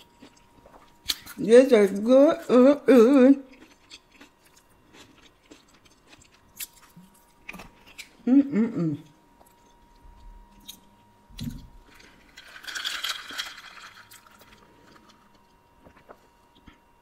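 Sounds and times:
chewing: 0.0s - 2.5s, 3.4s - 8.2s.

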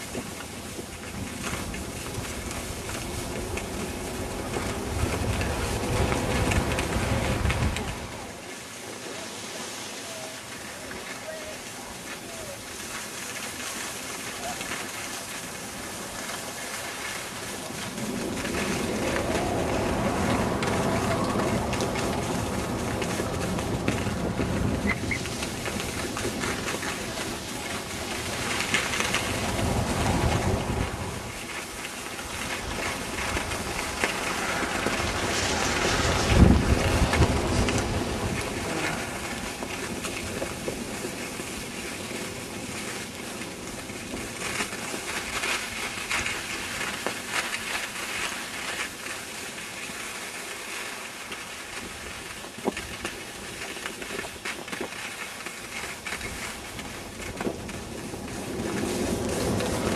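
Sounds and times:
wind buffeting microphone: 0.0s - 9.2s, 14.4s - 48.8s, 55.7s - 59.9s.

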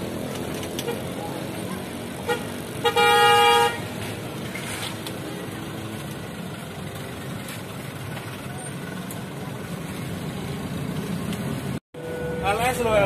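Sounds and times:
street traffic noise: 0.0s - 13.0s
vehicle horn toots: 2.2s - 3.9s.

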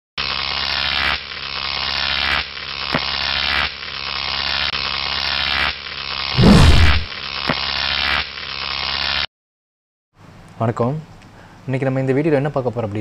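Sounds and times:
harsh electric buzz: 0.2s - 9.3s.

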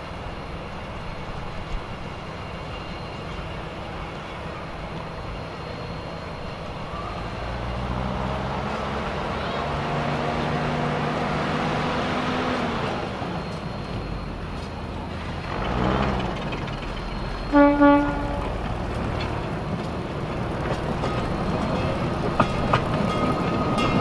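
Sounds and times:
rail car engine running: 0.0s - 24.0s
short horn toot: 17.5s - 18.5s.

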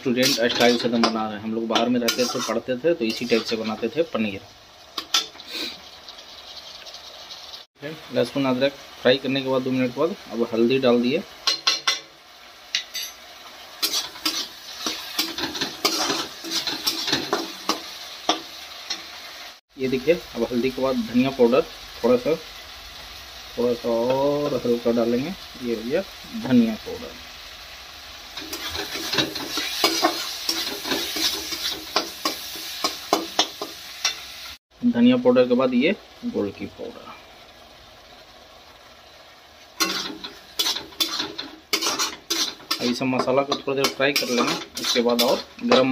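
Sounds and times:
metal spatula scraping pan: 0.0s - 3.8s, 13.8s - 19.1s, 28.4s - 34.3s, 39.8s - 45.9s
masala sizzling in oil: 0.0s - 45.9s.

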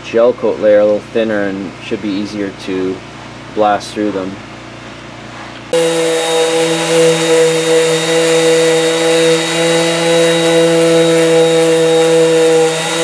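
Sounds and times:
orbital sander whining: 5.8s - 13.0s.

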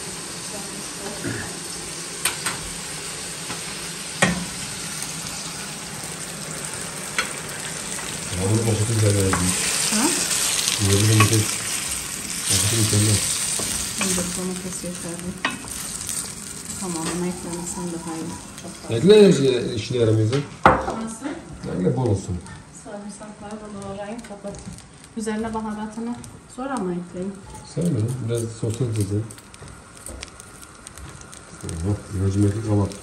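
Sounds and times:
vegetables sizzling in a pan: 0.0s - 33.0s
wooden spoon stirring: 27.3s - 33.0s.

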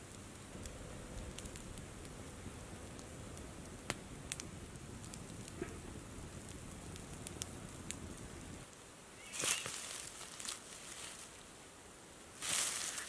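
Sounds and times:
wood fire crackling: 0.0s - 13.0s
leaf litter rustling and crunching: 9.2s - 11.5s, 12.3s - 13.0s.

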